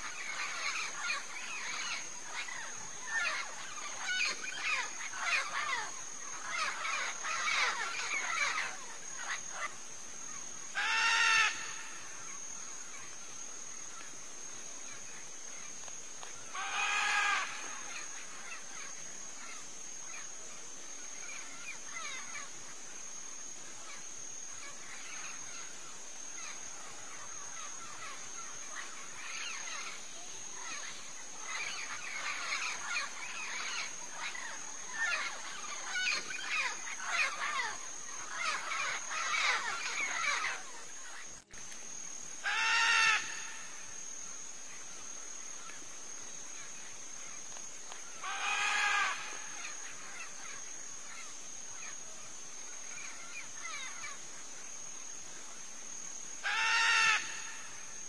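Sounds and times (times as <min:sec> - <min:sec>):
macaws chattering and calling: 0:00.0 - 0:09.8, 0:10.7 - 0:12.9, 0:15.8 - 0:20.2, 0:24.6 - 0:41.2, 0:42.4 - 0:43.9, 0:47.9 - 0:52.0, 0:56.4 - 0:57.9
insect buzz: 0:00.0 - 0:58.0.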